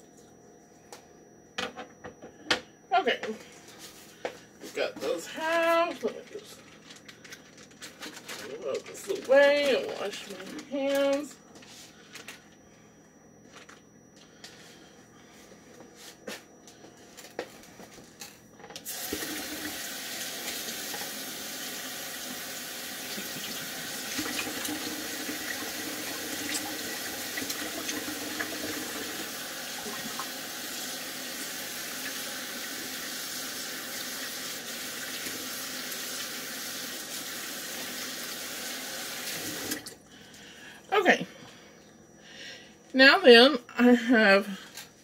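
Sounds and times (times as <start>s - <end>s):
tap water running: 18.8s - 40.0s.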